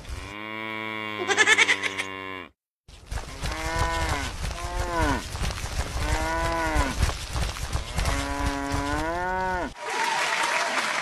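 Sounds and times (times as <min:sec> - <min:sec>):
cartoon cow mooing: 0:00.2 - 0:02.5
applause: 0:09.8 - 0:11.0.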